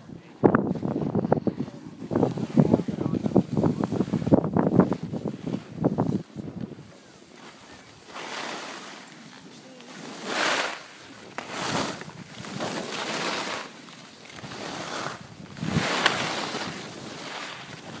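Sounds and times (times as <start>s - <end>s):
wind on microphone: 0.0s - 7.0s, 10.2s - 13.6s, 14.4s - 18.0s
skis scraping over packed snow: 0.6s - 18.0s.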